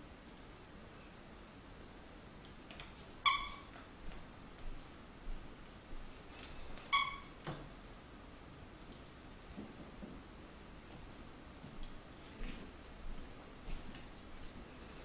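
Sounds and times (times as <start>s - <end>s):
dog toy squeaking: 3.2s - 3.8s, 6.9s - 7.4s.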